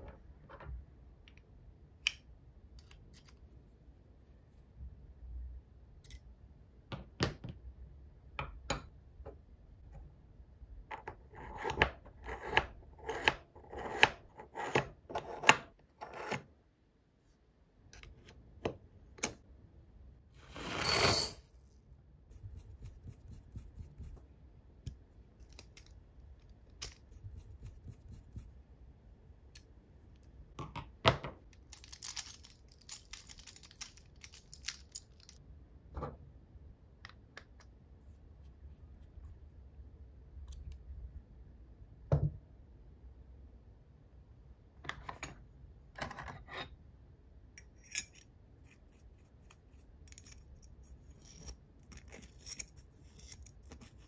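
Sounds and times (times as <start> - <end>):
small metal parts clicking: 31.5 - 35.4.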